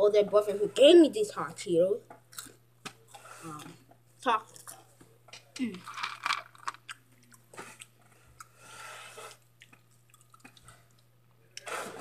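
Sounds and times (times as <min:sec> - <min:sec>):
crunchy snack chewing: 0:09.2 - 0:11.0.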